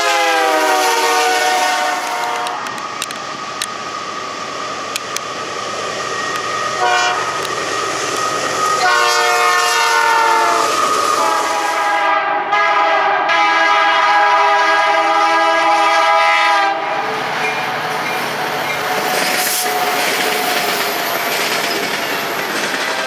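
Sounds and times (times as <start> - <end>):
locomotive horn blowing: 0.0 - 2.8, 6.8 - 7.4, 8.8 - 17.1
passing train rumble: 0.0 - 23.0.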